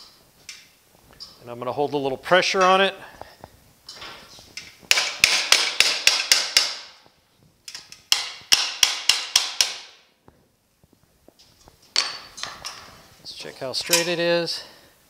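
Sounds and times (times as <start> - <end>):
hammer striking steel: 4.9 - 7.0, 8.1 - 10.1.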